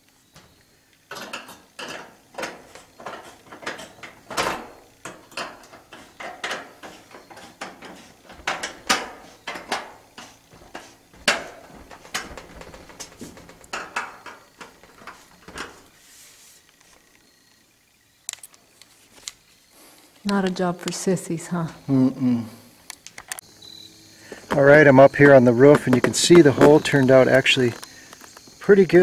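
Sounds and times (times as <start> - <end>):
metal pipe knocks and scrapes: 1.1 - 15.9.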